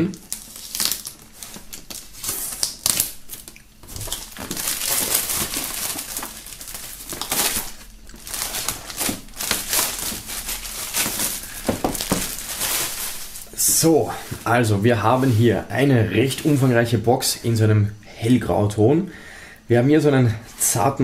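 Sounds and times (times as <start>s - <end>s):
plastic shrink-wrap crinkling: 0.0s - 16.7s.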